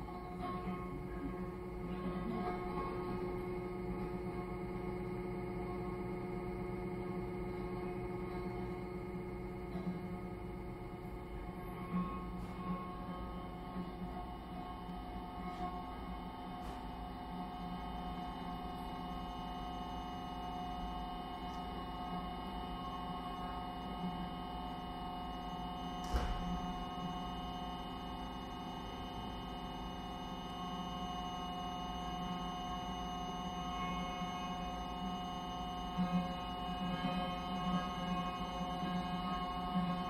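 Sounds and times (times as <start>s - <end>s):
electronic drone of held tones: 0.0s - 40.0s.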